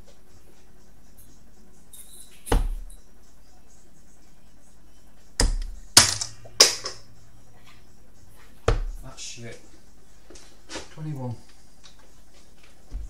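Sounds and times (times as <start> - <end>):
darts thudding into dartboard: 2.4 - 2.9, 5.4 - 7.0, 8.6 - 9.0.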